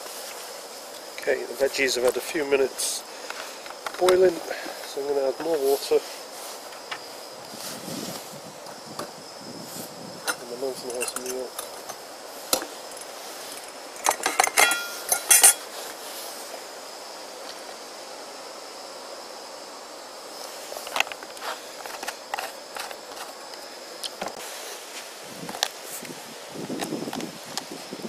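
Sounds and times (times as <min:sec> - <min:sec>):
gas camping stove hissing: 0:00.0 - 0:28.0
pot lid clattering on pot: 0:14.1 - 0:15.6.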